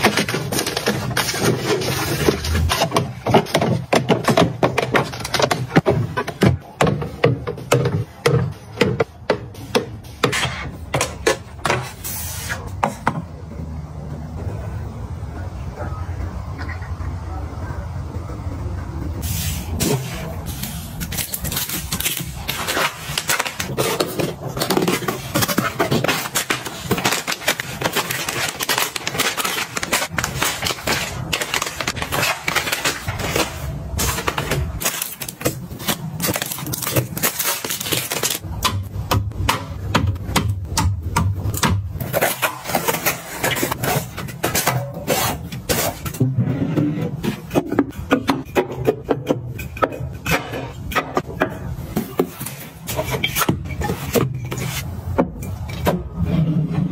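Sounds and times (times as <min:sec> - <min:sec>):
items knocking and clattering: 0:00.0 - 0:12.0, 0:21.0 - 0:56.9
plastic snack packets crinkling: 0:21.0 - 0:38.4.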